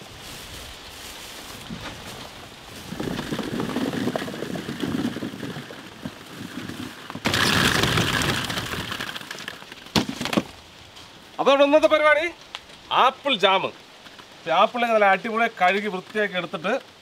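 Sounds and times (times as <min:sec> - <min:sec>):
apples clattering and rolling: 0:01.5 - 0:12.9.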